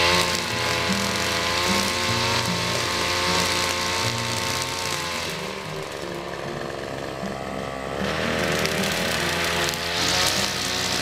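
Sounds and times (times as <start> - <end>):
brush cutter engine revving: 0.0 - 11.0.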